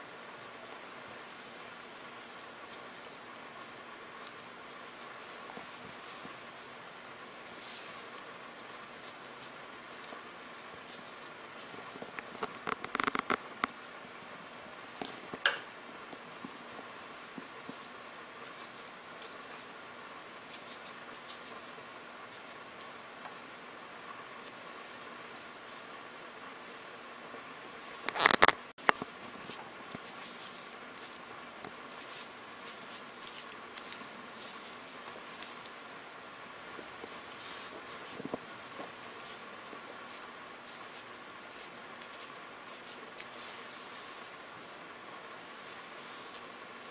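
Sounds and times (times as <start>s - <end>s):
steady hiss: 0.0s - 46.9s
ink brush swishing on paper: 1.0s - 6.6s, 7.4s - 12.5s, 16.4s - 25.9s, 29.4s - 31.3s, 31.9s - 35.9s, 36.7s - 44.4s, 45.2s - 46.9s.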